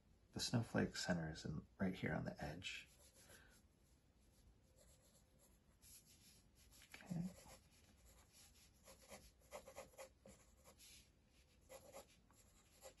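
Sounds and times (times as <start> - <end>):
pencil scratching on paper: 4.7 - 13.0.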